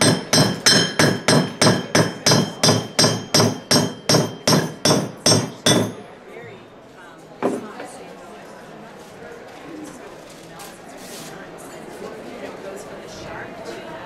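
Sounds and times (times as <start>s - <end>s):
hammer striking metal anvil: 0.0s - 6.0s.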